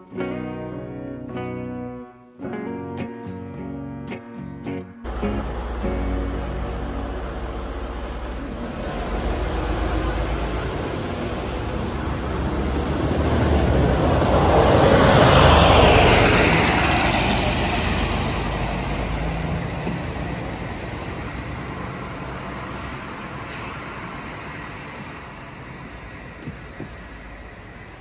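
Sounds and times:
vehicle driving past: 5.1 - 26.4.

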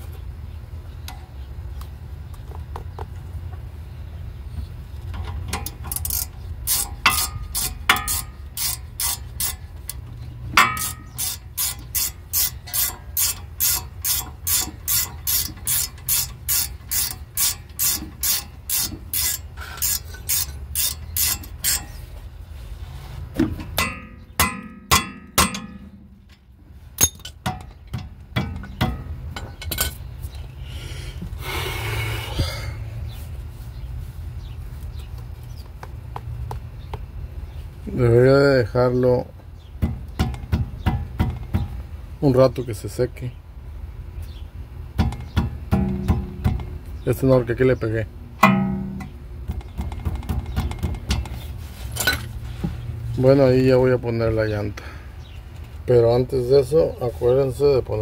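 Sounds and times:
ratchet wrench clicking: 5.5 - 10.0, 10.6 - 21.9
short scraping rub: 15.3 - 23.3, 51.3 - 53.0.

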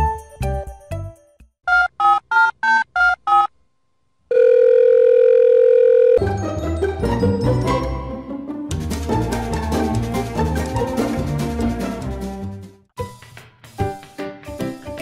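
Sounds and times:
background music: 6.2 - 15.0.

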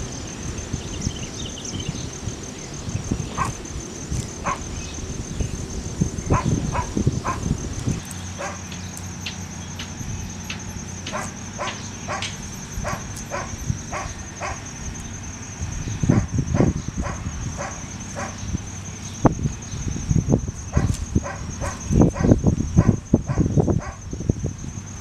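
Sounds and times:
insects buzzing: 0.0 - 25.0
dog barking: 3.4 - 3.6, 4.4 - 4.6, 6.3 - 7.5, 8.4 - 8.7, 11.1 - 14.6, 16.1 - 18.4, 20.7 - 24.0.

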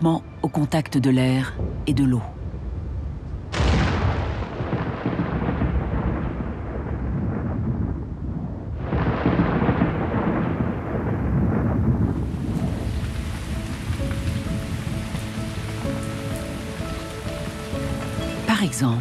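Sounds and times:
thunder rumbling: 1.3 - 19.0
rain hissing: 8.8 - 19.0.

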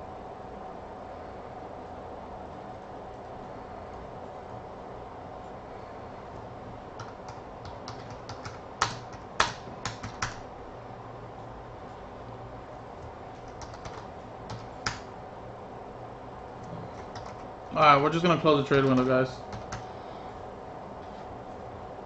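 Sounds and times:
steady low hum: 0.0 - 22.0
computer keyboard typing: 7.0 - 10.4, 13.0 - 15.1, 16.6 - 17.5, 18.8 - 19.9.

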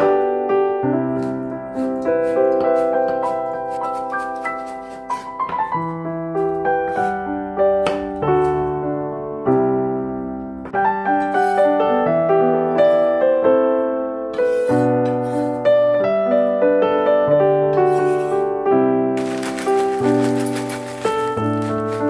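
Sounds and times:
gentle solo piano melody: 0.0 - 22.0.

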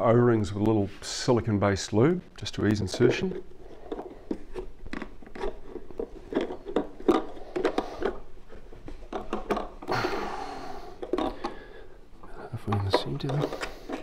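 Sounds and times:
plastic scraping rub: 2.7 - 14.0
plastic clicks and knocks: 8.9 - 9.9, 11.0 - 11.6, 12.6 - 14.0.

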